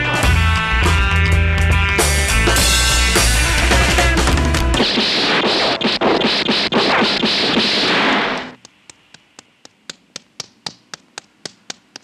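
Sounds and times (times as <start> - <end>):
loud crackling rushing noise: 3.5 - 8.6.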